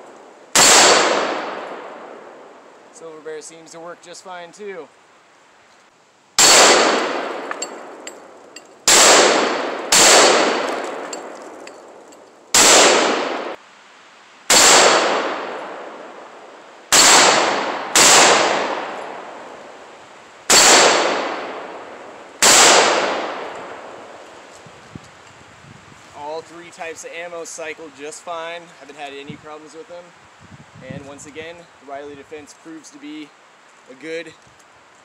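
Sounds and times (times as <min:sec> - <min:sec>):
rifle shots echoing: 0:00.5 - 0:02.4, 0:06.4 - 0:11.7, 0:12.5 - 0:13.6, 0:14.5 - 0:16.2, 0:16.9 - 0:19.5, 0:20.5 - 0:24.0.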